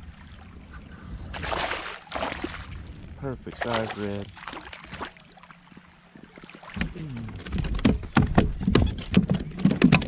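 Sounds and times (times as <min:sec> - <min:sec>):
fish splashing: 0:01.4 - 0:02.8
knocks and thuds on kayak hull: 0:06.8 - 0:10.0.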